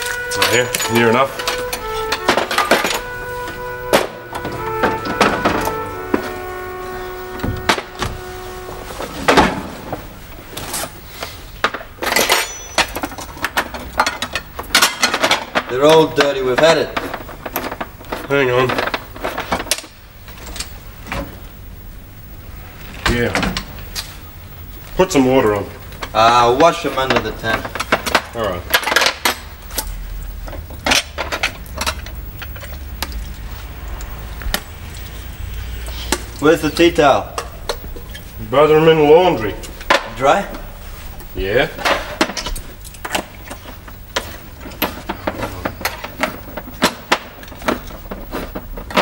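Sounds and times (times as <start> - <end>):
crockery and cutlery clattering: 0.0 - 6.8, 11.6 - 20.0
low steady hum: 0.0 - 49.0.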